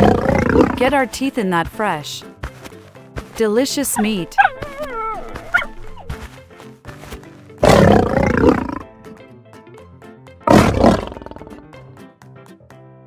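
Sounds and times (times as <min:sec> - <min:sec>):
lion roaring: 0:00.0 - 0:00.8, 0:07.6 - 0:08.8, 0:10.5 - 0:11.6
background music: 0:00.0 - 0:13.0.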